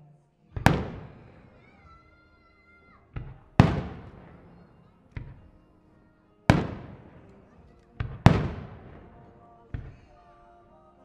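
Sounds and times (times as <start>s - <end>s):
firework shells bursting: 0.5s - 2.2s, 3.1s - 5.8s, 6.4s - 10.6s.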